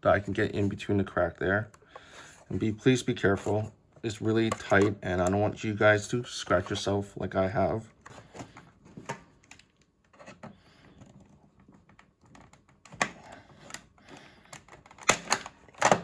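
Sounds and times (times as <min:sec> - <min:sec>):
plastic clicking and scraping: 0:04.3 - 0:05.5, 0:08.0 - 0:16.0.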